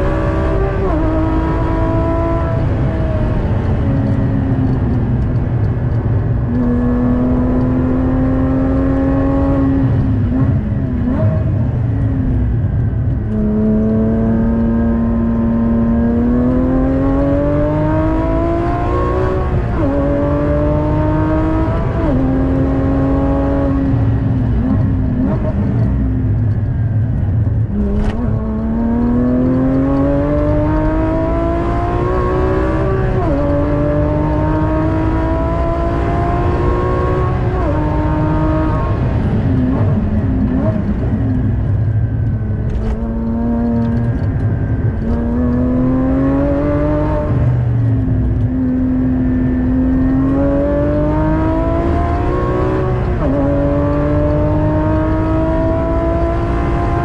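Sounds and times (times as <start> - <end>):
sports car engine accelerating: 0.0 - 57.0.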